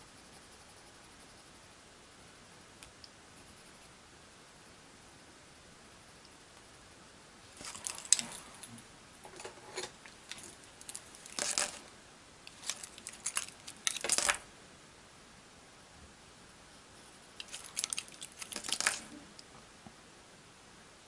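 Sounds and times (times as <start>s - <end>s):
wooden pencils clicking: 10.3s - 11.8s, 12.5s - 14.4s, 17.4s - 19.1s.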